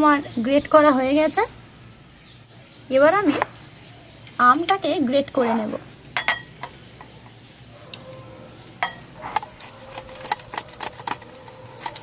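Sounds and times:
metallic grater scrapes and clicks: 8.9s - 12.0s.

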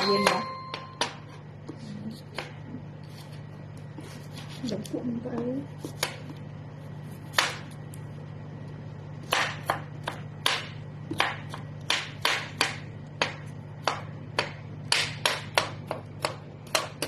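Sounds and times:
knife chopping on cutting board: 0.0s - 2.8s, 5.8s - 6.4s, 7.1s - 7.8s, 9.2s - 17.0s.

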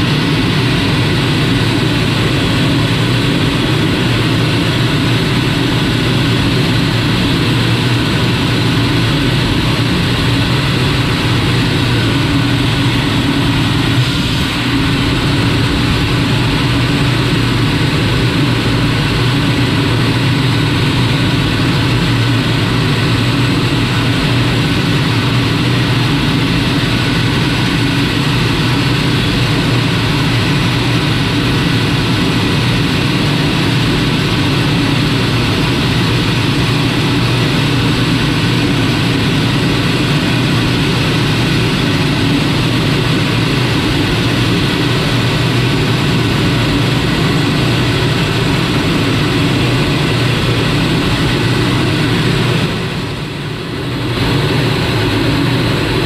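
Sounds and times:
jet engine and airflow noise: 0.0s - 56.0s.

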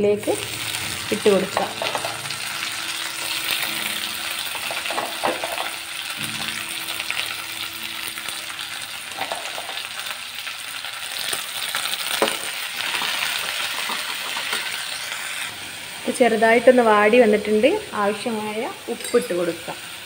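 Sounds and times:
leaves sizzling in oil: 0.0s - 20.0s
spoon scraping and knocking pan: 1.4s - 2.4s, 4.5s - 5.8s, 9.1s - 9.9s.

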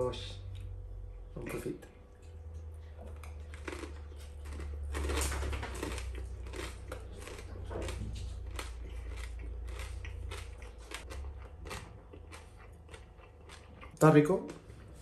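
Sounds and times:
crunching crispy rice: 3.1s - 14.7s.

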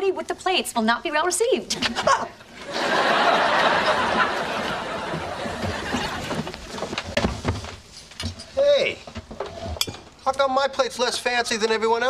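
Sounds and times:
studio audience laughing: 1.8s - 6.6s.

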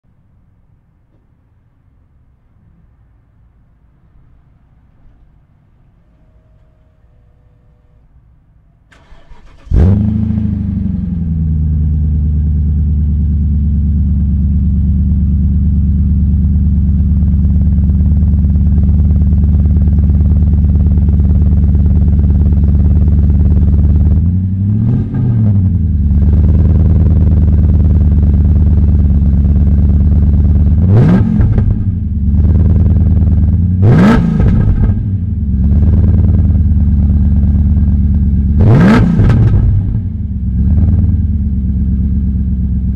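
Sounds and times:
car engine starting and idling: 4.4s - 42.9s
engine revving: 8.9s - 12.7s, 23.3s - 28.2s, 30.2s - 36.6s, 38.5s - 41.3s.

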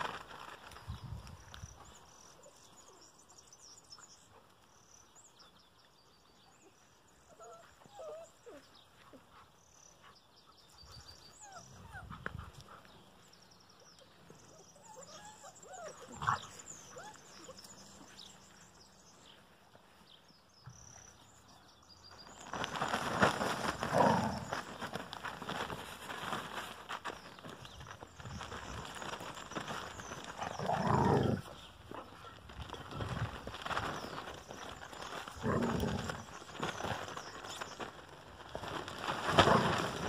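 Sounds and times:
puppies whining and yipping: 7.2s - 9.1s, 11.0s - 12.6s, 13.9s - 18.0s.

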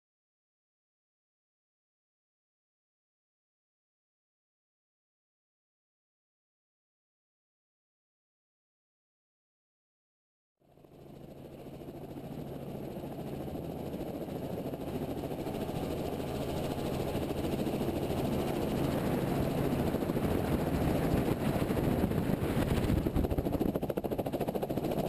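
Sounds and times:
helicopter engine and rotor: 10.6s - 25.0s.

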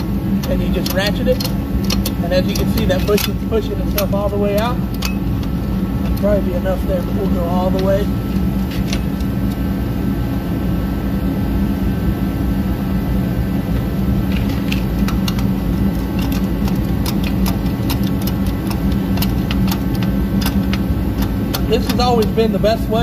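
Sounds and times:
ratchet clicks: 0.0s - 6.3s, 14.4s - 22.5s
steady engine-like drone: 0.0s - 23.0s.

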